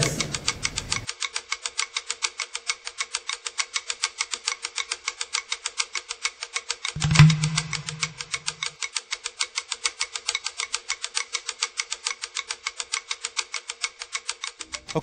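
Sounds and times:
faint steady tone: 7.0s - 8.6s
fast ticking beat: 7.0s - 8.6s
low held note: 7.0s - 8.6s.

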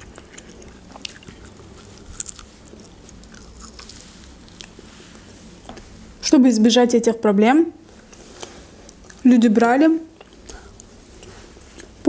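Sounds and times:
chewing and biting food: 0.0s - 4.8s.

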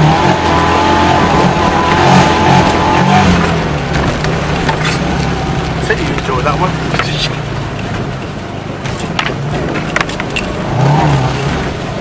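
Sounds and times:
car engine running under load: 0.0s - 12.0s
car knocking and rattling over ruts: 0.0s - 12.0s.

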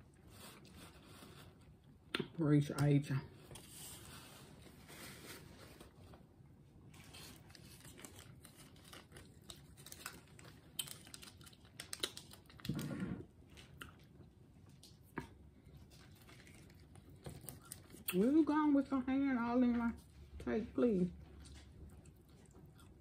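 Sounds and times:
tearing and chewing food: 6.8s - 18.4s, 21.2s - 23.0s
small clicks and crackles: 7.2s - 15.0s.

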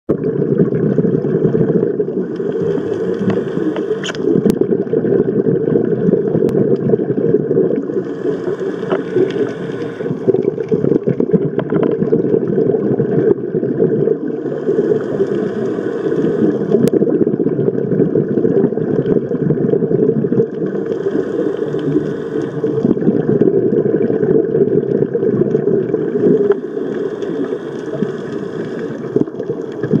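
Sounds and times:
underwater low rumble: 0.1s - 30.0s
scuba regulator breathing hiss: 2.2s - 4.4s, 7.9s - 10.5s, 14.3s - 16.8s, 20.8s - 22.9s, 26.0s - 29.2s.

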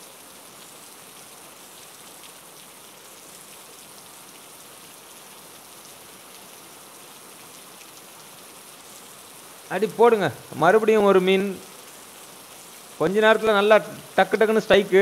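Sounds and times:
heavy rain hissing: 3.1s - 15.0s.

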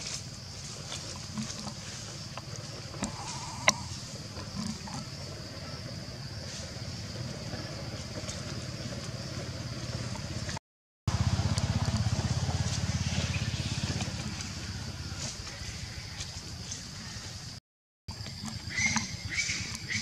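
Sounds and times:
pulsing engine rumble: 0.0s - 17.2s
high insect buzz: 3.0s - 7.1s.

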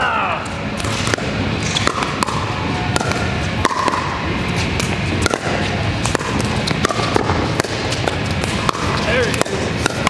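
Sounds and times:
low rumble of hall: 0.0s - 10.0s
paddles striking plastic ball: 0.8s - 4.1s
ball bouncing on court: 0.8s - 4.2s, 4.8s - 10.0s.

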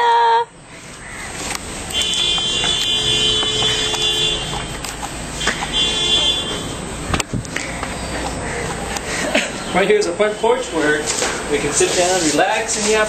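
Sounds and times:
vehicle horn honks: 1.9s - 6.9s
footsteps on stone steps: 2.3s - 5.8s.

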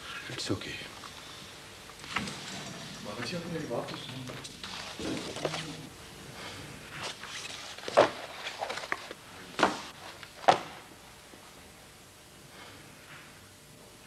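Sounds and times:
papers rustling: 2.0s - 5.9s, 7.0s - 10.8s.

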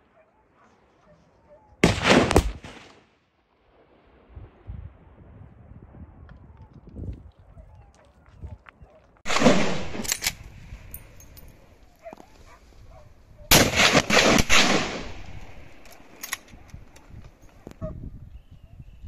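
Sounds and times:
echoing gunshots: 1.8s - 3.1s, 9.3s - 11.8s, 13.5s - 17.0s.

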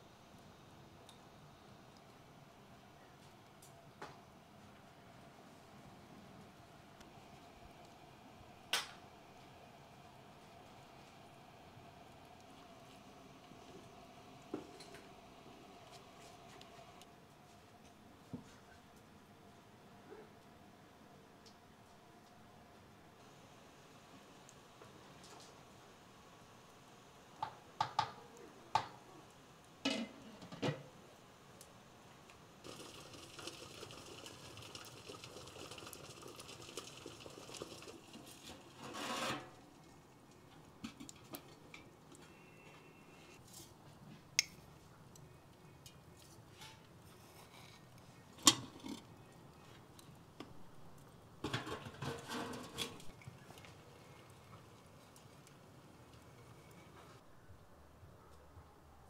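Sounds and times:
metal cookware scraping: 29.9s - 30.8s, 38.6s - 39.6s, 51.4s - 53.1s.

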